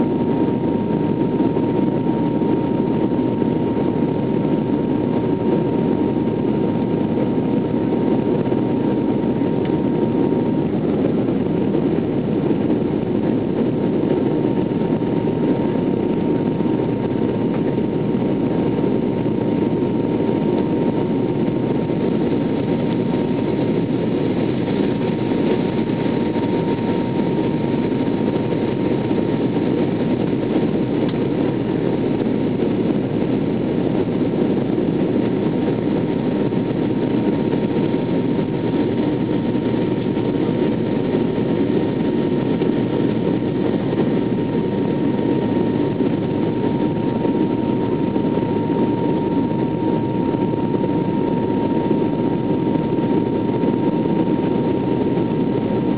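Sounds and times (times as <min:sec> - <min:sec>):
airliner cabin engine rush: 0:00.0 - 0:55.9
thin high whine: 0:36.0 - 0:55.9.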